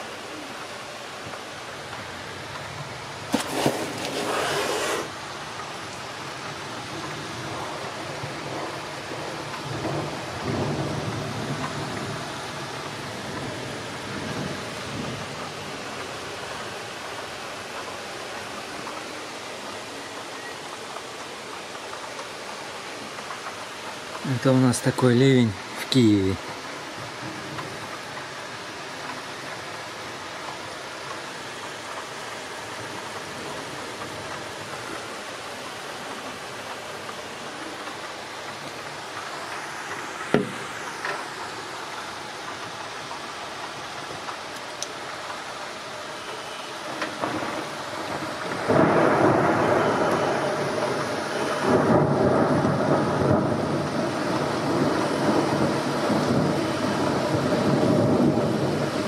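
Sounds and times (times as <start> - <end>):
heavy rain falling: 0.0 - 59.0.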